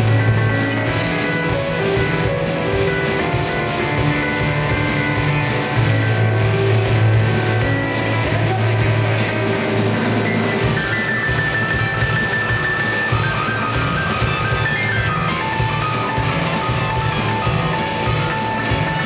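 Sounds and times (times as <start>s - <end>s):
bass line: 0.0s - 19.0s
drum and cymbal hits: 0.0s - 19.0s
live rock band playing: 0.0s - 19.0s.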